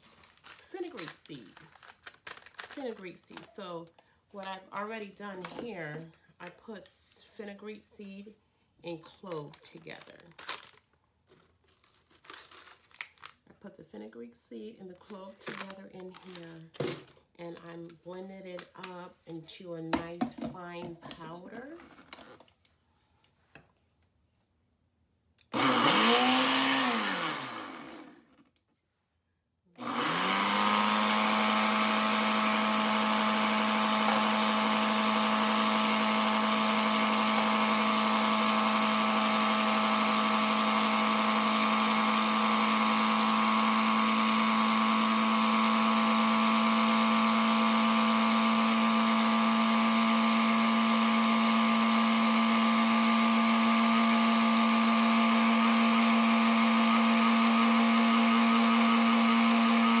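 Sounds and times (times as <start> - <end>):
electric blender grinding: 25.5 - 28.3, 29.8 - 60.0.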